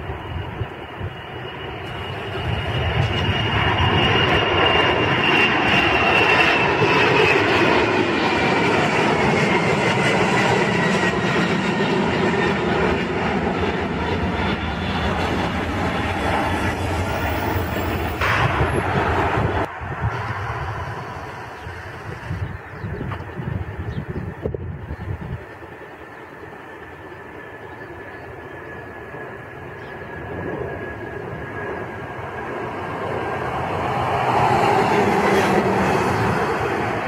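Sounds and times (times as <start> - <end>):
high engine whine falling: 0.0 - 37.0
jet engine roar: 0.0 - 37.0.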